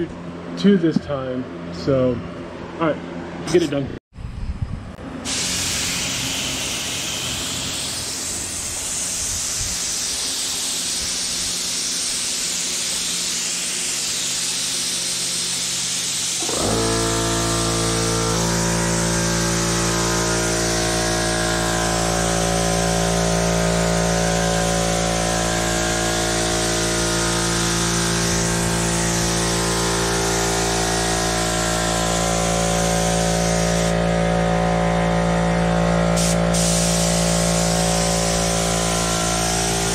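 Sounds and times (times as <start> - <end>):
air compressor motor hum: 5.0 - 39.9
spray gun hissing: 5.2 - 34.0, 36.2 - 39.9.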